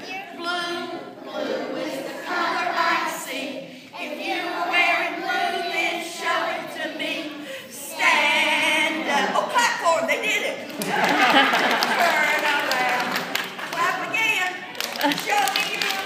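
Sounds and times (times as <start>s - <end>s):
children singing unaccompanied: 0.0s - 9.5s.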